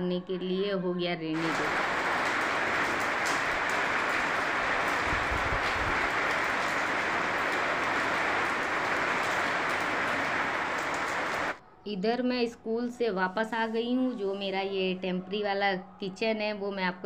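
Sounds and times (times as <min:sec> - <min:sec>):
steady rain falling: 0:01.4 - 0:11.6.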